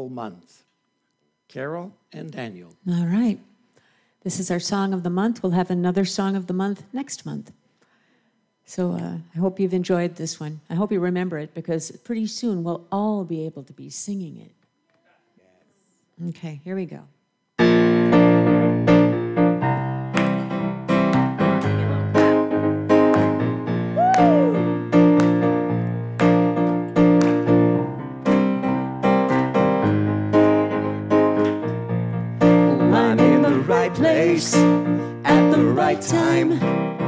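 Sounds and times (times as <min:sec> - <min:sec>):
keyboard piano chords: 0:17.6 - 0:37.0
voices singing: 0:32.6 - 0:37.0.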